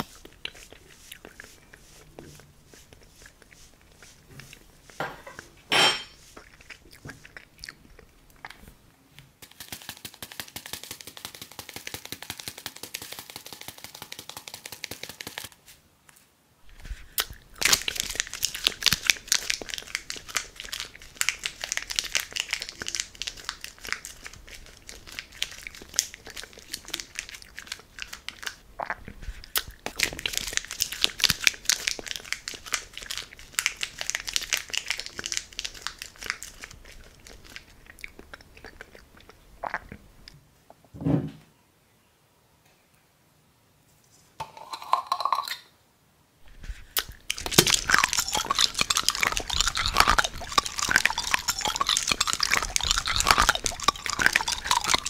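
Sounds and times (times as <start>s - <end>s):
chili flakes pouring onto plate: 46.5s - 55.0s.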